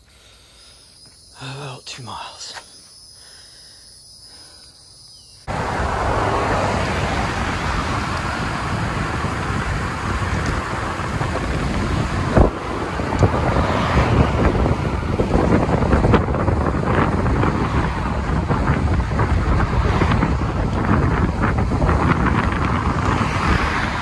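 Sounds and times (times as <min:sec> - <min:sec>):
road noise: 0:00.0 - 0:24.0
wind rushing over microphone: 0:05.5 - 0:24.0.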